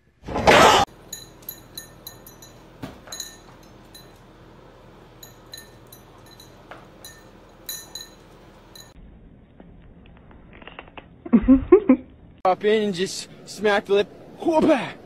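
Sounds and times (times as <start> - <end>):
light metallic clinking: 0.9 - 9.0.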